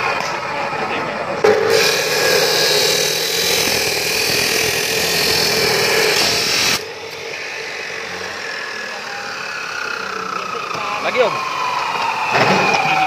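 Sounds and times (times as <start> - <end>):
abrasive saw grinding metal: 1.5 - 11.6
saw motor running: 1.5 - 13.0.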